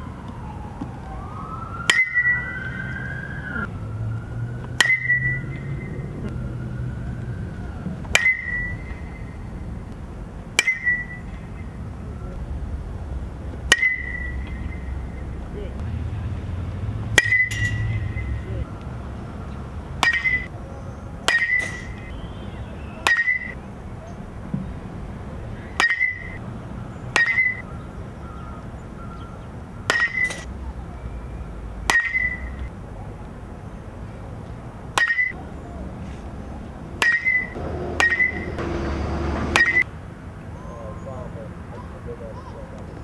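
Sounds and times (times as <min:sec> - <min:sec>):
metal bat pinging balls: 0:01.8 - 0:02.5, 0:04.7 - 0:06.0, 0:08.1 - 0:09.4, 0:10.6 - 0:11.8, 0:13.6 - 0:15.2, 0:17.1 - 0:18.6, 0:20.0 - 0:20.5, 0:21.2 - 0:22.2, 0:23.0 - 0:23.6, 0:25.7 - 0:26.4, 0:27.1 - 0:27.7, 0:29.9 - 0:30.5, 0:31.8 - 0:32.7, 0:35.0 - 0:35.4, 0:37.0 - 0:38.6, 0:39.5 - 0:39.8.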